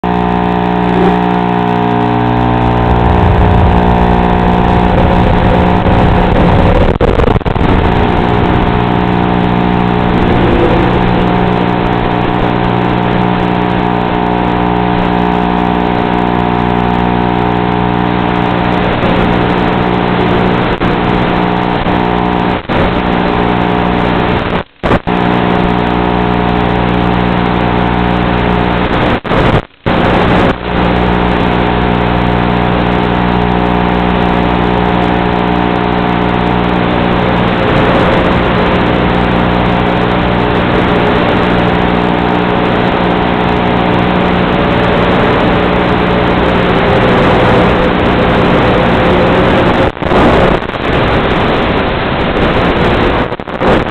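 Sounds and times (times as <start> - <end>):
electric motor and propeller humming: 0.1 - 22.4.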